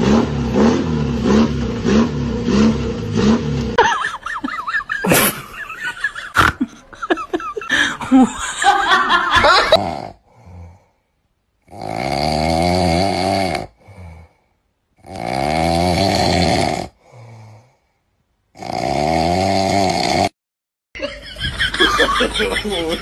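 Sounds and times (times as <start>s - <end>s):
man snoring: 9.6s - 11.0s, 11.6s - 17.9s, 18.5s - 20.4s
quiet breaths: 10.2s - 11.3s, 13.8s - 14.7s, 17.0s - 18.1s.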